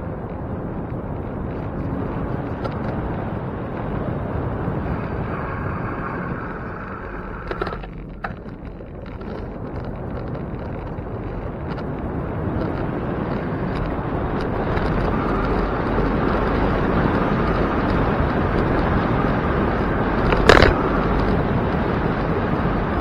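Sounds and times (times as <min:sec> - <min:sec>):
wind rushing: 0:00.0 - 0:08.7
road noise: 0:00.0 - 0:23.0.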